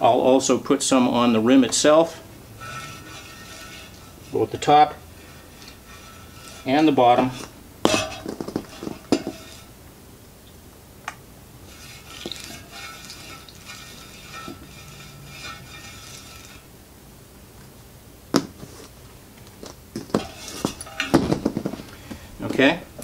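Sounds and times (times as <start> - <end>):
hand rubbing wheel rim: 1.4 - 9.8, 11.6 - 16.7, 19.6 - 22.8.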